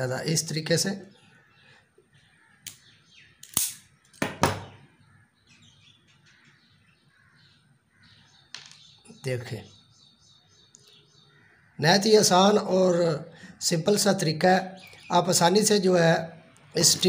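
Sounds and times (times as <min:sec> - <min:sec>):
wire stripper jaws snapping: 0:03.4 - 0:04.3.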